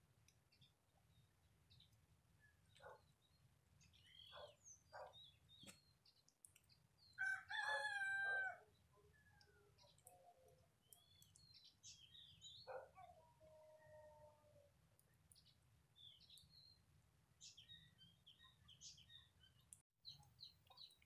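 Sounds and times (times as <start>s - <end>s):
rooster crowing: 7.2s - 8.6s.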